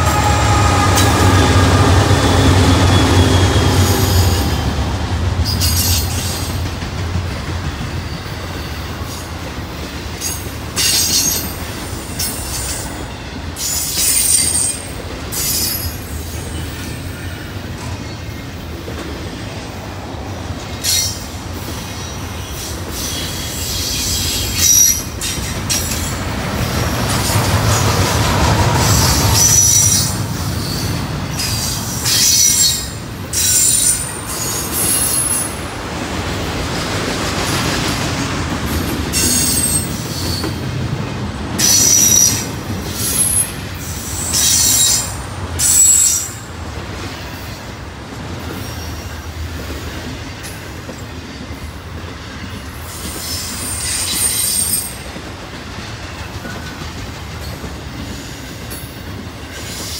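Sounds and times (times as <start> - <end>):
train rumble and clatter: 0.0 - 59.9
wheel squeals: 53.0 - 55.0.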